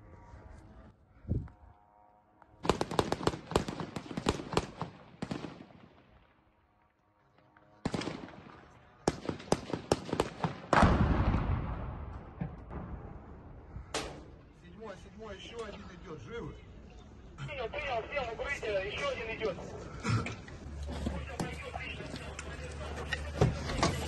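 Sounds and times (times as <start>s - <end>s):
automatic gunfire bursts: 2.6s - 5.8s, 9.1s - 10.9s
heavy explosion rumbling: 10.8s - 13.9s.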